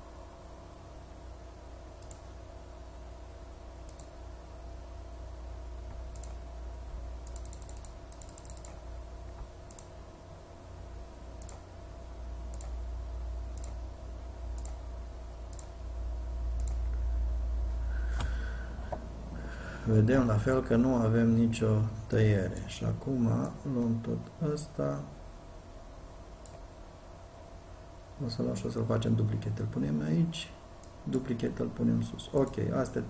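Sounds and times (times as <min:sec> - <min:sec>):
low steady hum: 0:00.0 - 0:33.0
mouse and keyboard clicking: 0:07.3 - 0:08.8.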